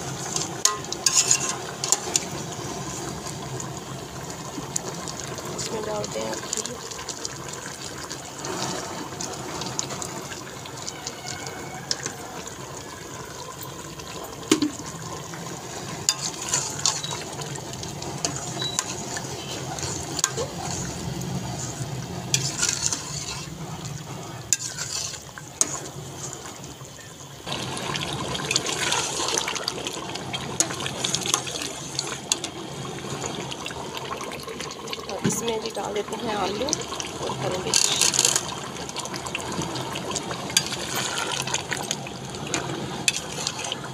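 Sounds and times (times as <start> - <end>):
ladle scraping and knocking pot: 0.0 - 2.5, 14.5 - 15.0, 15.9 - 26.4, 37.7 - 38.6, 40.1 - 43.9
curry sizzling and bubbling: 0.0 - 43.9.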